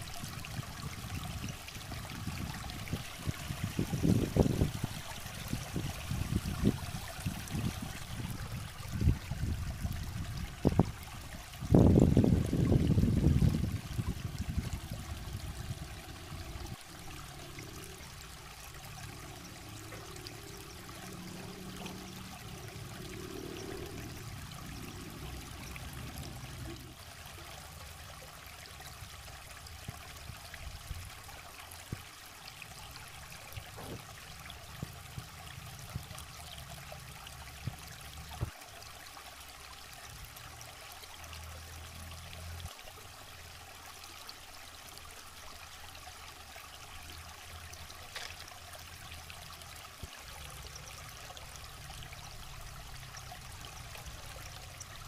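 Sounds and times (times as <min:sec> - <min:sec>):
stream over rocks: 0:00.0 - 0:55.0.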